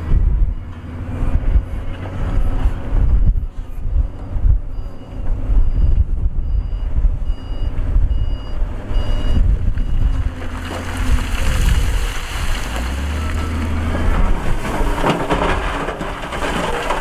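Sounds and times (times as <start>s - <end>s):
diesel engine rumble: 0.0s - 17.0s
reversing alarm beeping: 3.0s - 10.4s, 13.0s - 14.1s.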